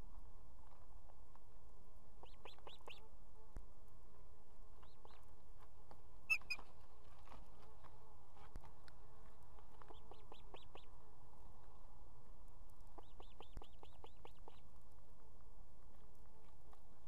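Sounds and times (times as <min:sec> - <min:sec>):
osprey chirping: 0:06.3 - 0:06.6, 0:09.9 - 0:10.9, 0:13.0 - 0:14.7.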